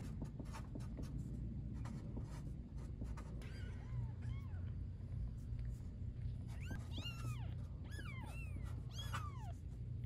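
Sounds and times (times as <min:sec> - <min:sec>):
low steady hum: 0:00.0 - 0:10.0
kittens mewing: 0:06.6 - 0:09.7.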